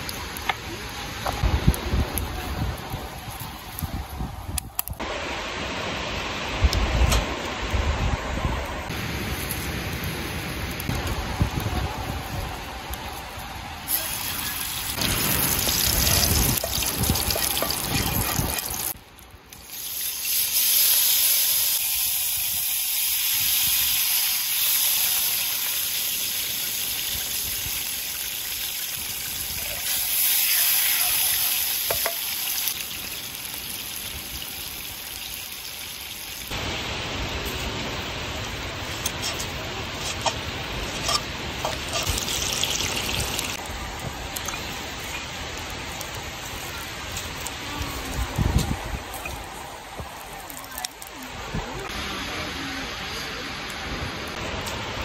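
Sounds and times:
hot oil sizzling in a frying pan: 0:13.9 - 0:36.6, 0:41.1 - 0:43.6.

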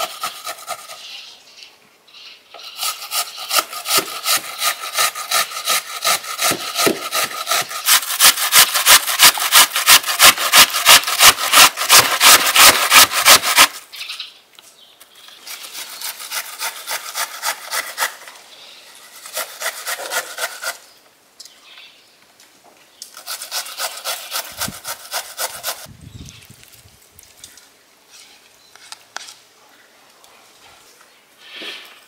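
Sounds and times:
onion rasping on grater: 0:02.7 - 0:13.8, 0:23.2 - 0:25.9.

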